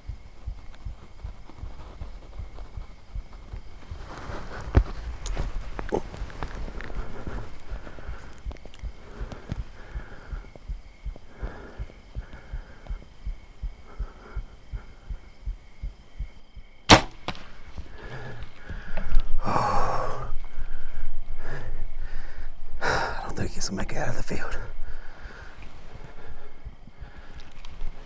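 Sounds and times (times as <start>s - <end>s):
soft low thumps: 0.0s - 17.1s, 26.0s - 27.3s
rustling: 0.3s - 10.8s
bow string release crack: 16.9s - 17.6s.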